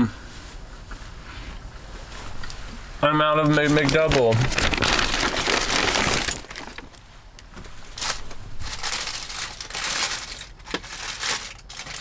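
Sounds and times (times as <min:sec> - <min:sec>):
paper wrapper crinkling: 0:03.5 - 0:07.1, 0:07.9 - 0:12.0.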